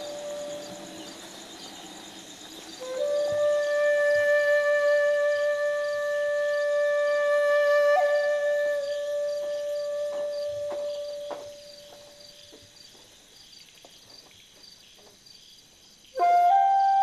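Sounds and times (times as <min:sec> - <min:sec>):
held flute note: 0:00.0 - 0:01.8, 0:02.8 - 0:12.2, 0:16.2 - 0:17.0
crickets chirping: 0:00.0 - 0:17.0.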